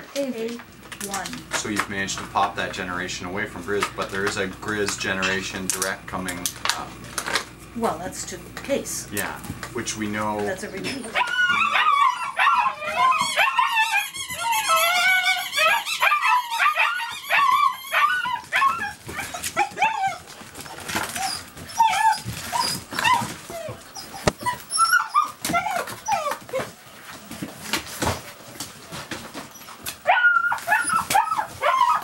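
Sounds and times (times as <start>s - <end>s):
puppies yipping and whining: 10.6s - 26.9s, 28.9s - 32.0s.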